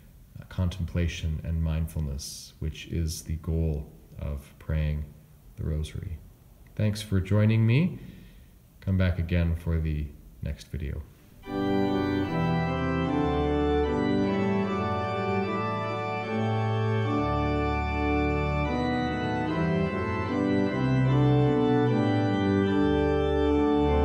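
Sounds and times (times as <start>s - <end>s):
organ chords: 11.1s - 24.0s.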